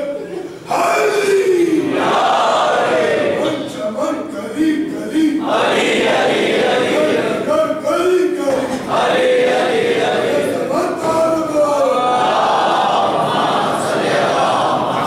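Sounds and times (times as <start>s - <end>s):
group chanting in unison: 0.7s - 3.8s, 5.4s - 7.8s, 8.6s - 11.1s, 11.9s - 15.0s.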